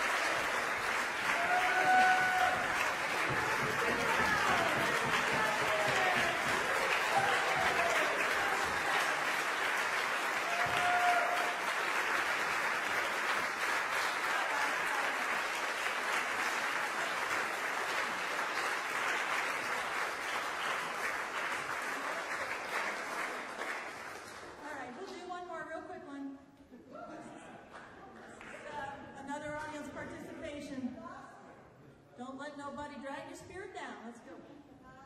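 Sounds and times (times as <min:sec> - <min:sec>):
audience cheer: 0:00.0 - 0:12.0, 0:14.0 - 0:15.6
audience applauding: 0:00.0 - 0:24.8.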